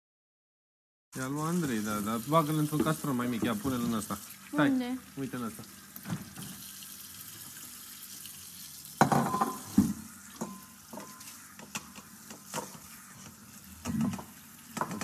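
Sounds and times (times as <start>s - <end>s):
clinks and knocks at counter: 9.0s - 11.2s
metal bowl and utensils clattering: 9.0s - 15.0s.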